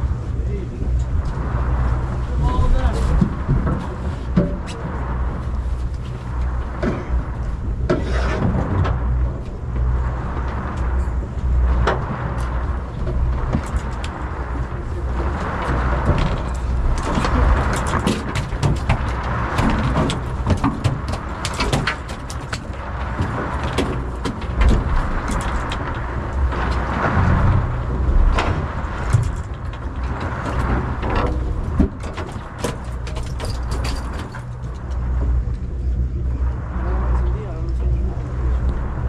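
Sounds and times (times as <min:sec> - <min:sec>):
boat engine humming: 0:00.0 - 0:39.0
wind and sea rushing: 0:00.0 - 0:39.0
tackle clicking and knocking: 0:15.3 - 0:27.6.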